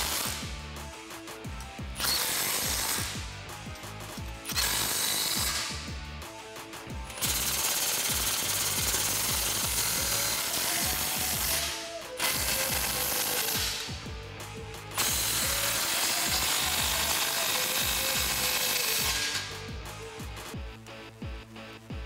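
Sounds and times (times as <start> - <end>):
cordless ratchet whirring: 1.8 - 3.3, 4.3 - 6.0, 7.0 - 14.1, 15.0 - 20.2.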